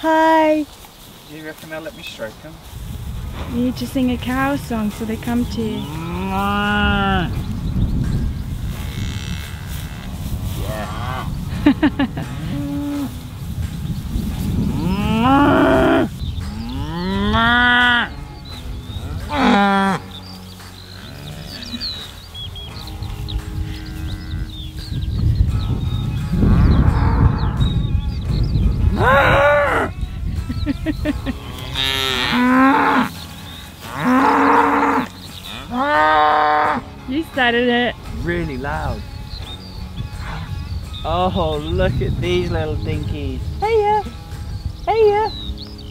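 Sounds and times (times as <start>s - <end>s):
cattle mooing: 5.5s - 7.4s, 8.8s - 11.4s, 14.6s - 18.4s, 19.0s - 20.2s, 28.9s - 30.0s, 31.3s - 33.2s, 33.8s - 36.9s.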